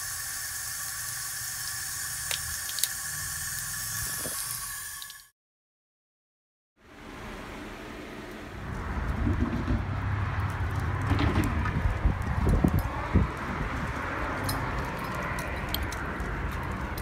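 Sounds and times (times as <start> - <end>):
wind on phone microphone: 11.2 - 14.1.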